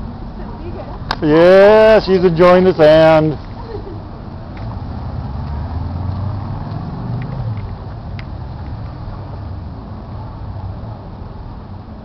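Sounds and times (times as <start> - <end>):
car passing by: 4.6 - 11.8.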